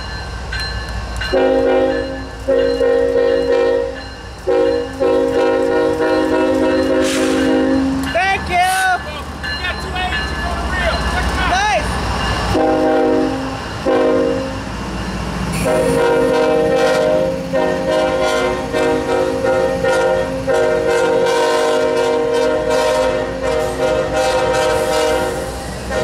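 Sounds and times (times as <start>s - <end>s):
locomotive rumble: 0.0s - 26.0s
locomotive air horn blasts: 1.3s - 7.8s, 12.5s - 14.6s, 15.6s - 26.0s.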